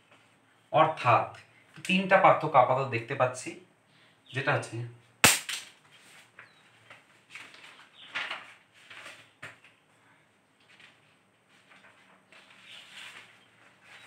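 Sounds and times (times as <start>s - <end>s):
faint rustling and scuffs: 5.8s - 14.0s.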